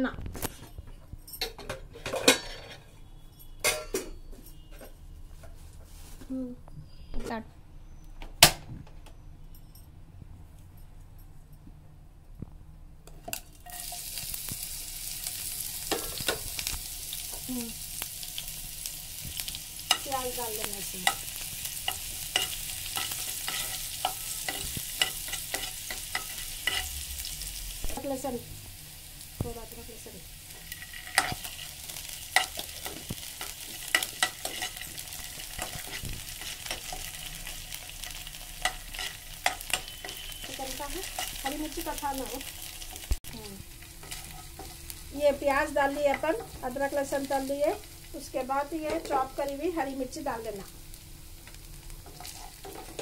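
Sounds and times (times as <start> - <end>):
onions sizzling in oil: 13.3 - 53.0
spoon scraping a pan: 19.4 - 27.0, 30.5 - 41.9, 44.0 - 44.9, 52.0 - 53.0.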